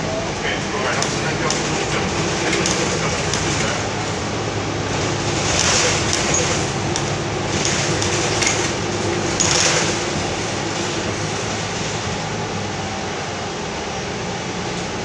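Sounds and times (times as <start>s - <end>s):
bus drivetrain hum: 0.0s - 15.0s
road noise: 0.0s - 15.0s.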